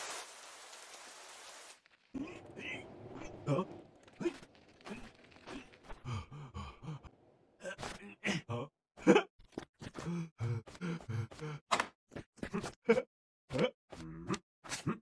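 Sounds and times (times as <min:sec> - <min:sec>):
man grunting and gasping: 0:03.4 - 0:11.7.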